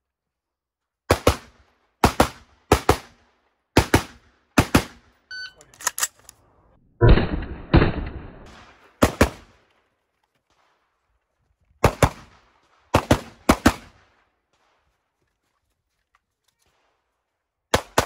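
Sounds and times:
rifle gunshots with echo: 7.0s - 9.6s, 11.8s - 14.7s.

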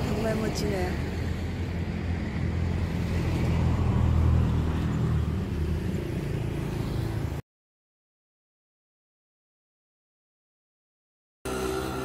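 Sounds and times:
vehicle engine humming: 11.5s - 12.0s.

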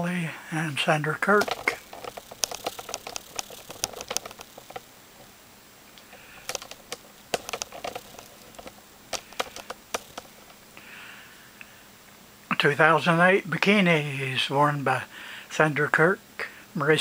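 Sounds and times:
light clicks and taps: 1.3s - 4.9s, 5.9s - 10.6s.

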